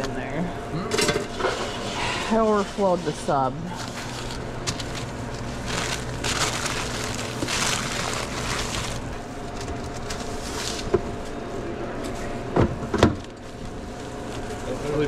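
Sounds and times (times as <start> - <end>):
steady background hum: 0.0 - 15.0
sandwich rustling and handling: 1.3 - 11.5, 13.2 - 15.0.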